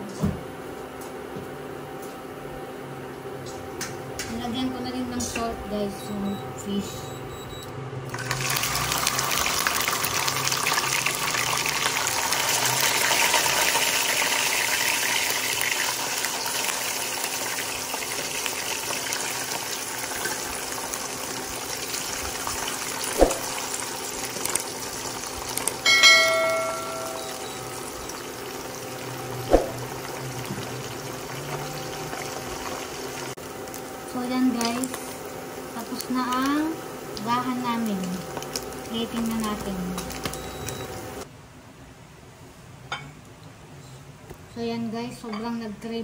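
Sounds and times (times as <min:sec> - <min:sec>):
short beep tone: 0:06.0 - 0:07.7, 0:26.0 - 0:27.7
fish sizzling in hot oil: 0:08.1 - 0:33.4.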